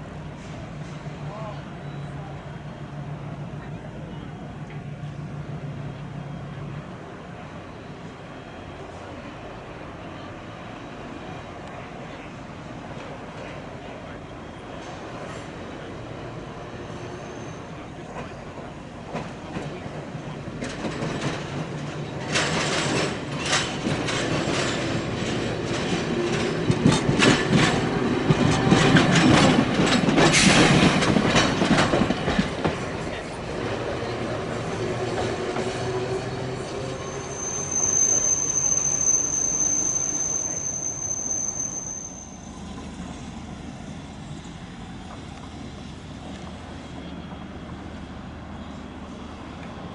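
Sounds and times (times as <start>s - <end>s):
high wheel squeal: 16.6s - 18.4s, 34.6s - 43.2s
streetcar wheels clattering over joints: 18.1s - 37.0s.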